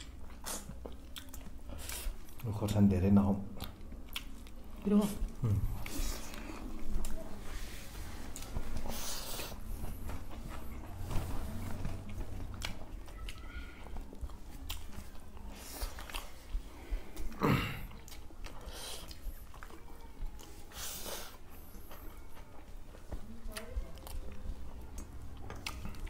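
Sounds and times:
chewing and mouth noises: 0.0 - 26.0.

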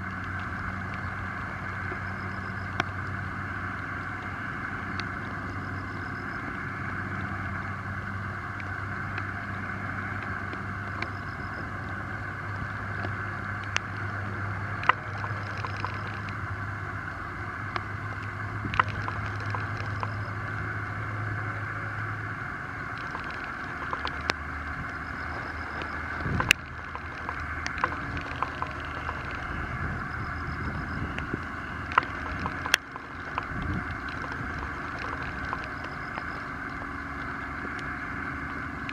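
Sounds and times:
motor drone: 0.0 - 38.9
small water splashes: 31.2 - 38.9.

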